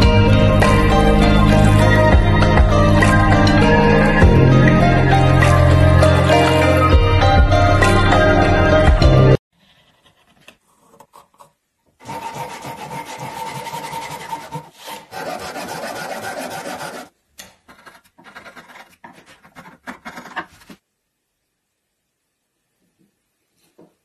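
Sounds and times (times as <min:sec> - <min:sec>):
hand tool rasping wood: 0:12.0 - 0:17.1, 0:17.7 - 0:20.8.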